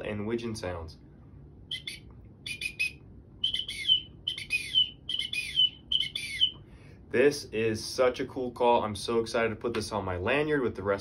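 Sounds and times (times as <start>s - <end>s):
duck call whistles: 1.7s - 6.5s.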